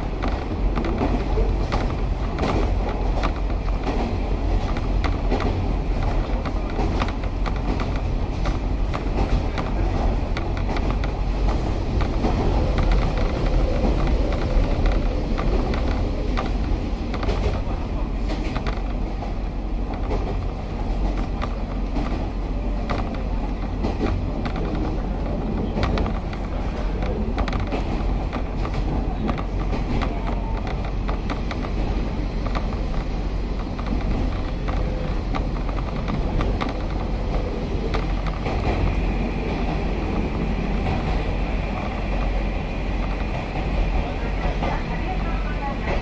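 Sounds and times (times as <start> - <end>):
railcar low rumble: 0.0 - 46.0
carriage clicks and creaks: 0.2 - 19.3.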